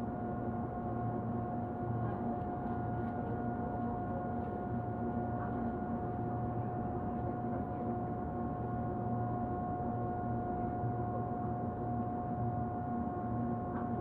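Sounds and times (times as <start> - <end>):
train interior low rumble: 0.0 - 14.0.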